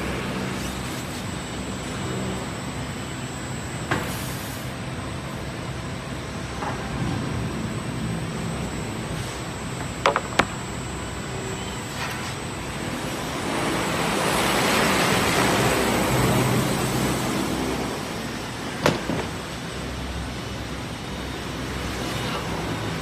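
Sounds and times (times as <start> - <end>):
workshop machinery hiss: 0.0 - 2.6, 3.8 - 5.0.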